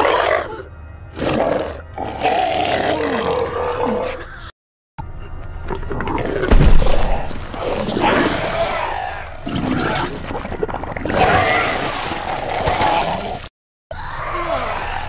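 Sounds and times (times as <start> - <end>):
monster roaring and growling: 1.2 - 4.3, 5.8 - 13.5.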